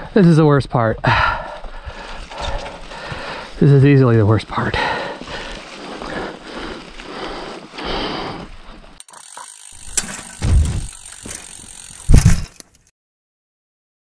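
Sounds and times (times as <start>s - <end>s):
bike rattling and clicking: 1.9s - 12.9s
heavy low thumps: 10.4s - 10.9s.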